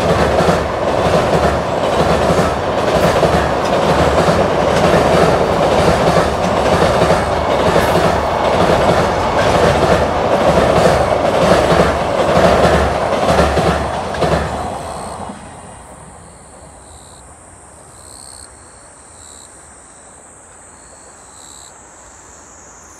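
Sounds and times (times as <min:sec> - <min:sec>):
train wheels clattering on bridge: 0:00.0 - 0:15.6.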